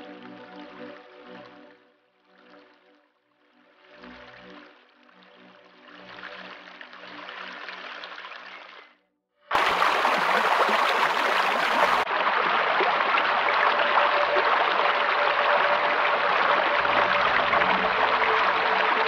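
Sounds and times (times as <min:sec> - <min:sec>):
stream splashing over stones: 0:06.2 - 0:08.8, 0:09.5 - 0:19.0.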